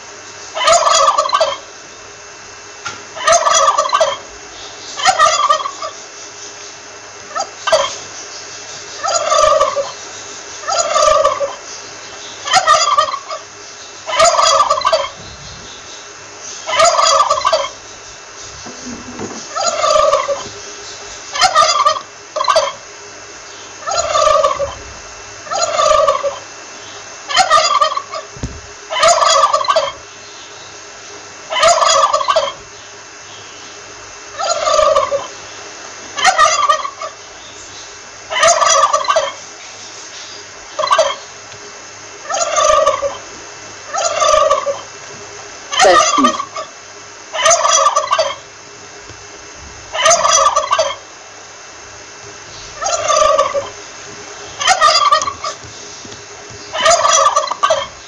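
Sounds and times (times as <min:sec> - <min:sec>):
turkey gobbling: 0:00.5 - 0:01.7, 0:03.2 - 0:04.3, 0:05.0 - 0:06.0, 0:07.3 - 0:08.0, 0:09.0 - 0:10.0, 0:10.6 - 0:11.7, 0:12.4 - 0:20.5, 0:21.2 - 0:22.9, 0:23.5 - 0:30.2, 0:31.5 - 0:32.6, 0:34.3 - 0:35.5, 0:36.1 - 0:37.2, 0:38.3 - 0:39.5, 0:40.7 - 0:41.3, 0:42.2 - 0:43.3, 0:43.9 - 0:45.1, 0:45.7 - 0:48.5, 0:49.9 - 0:51.1, 0:52.5 - 0:58.0.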